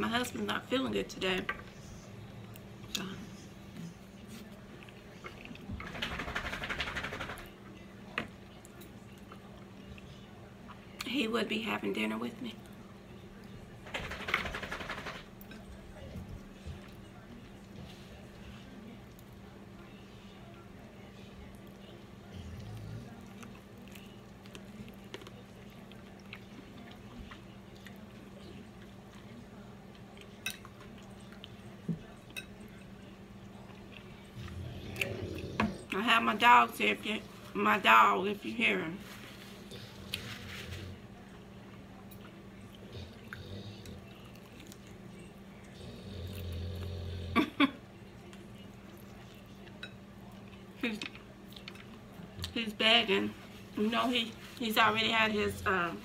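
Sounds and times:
chewing fried chicken: 0:12.6 - 0:36.0, 0:39.0 - 0:52.6.

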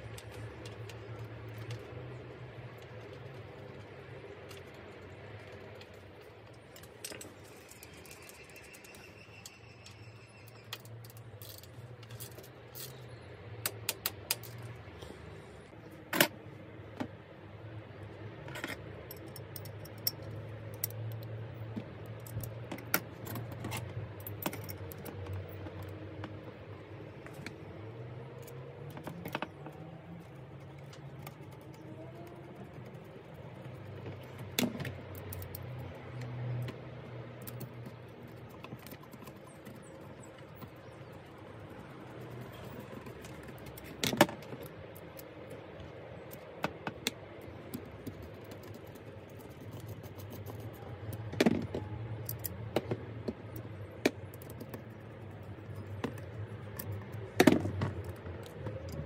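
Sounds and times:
small metal parts clinking: 0:06.6 - 0:13.1.

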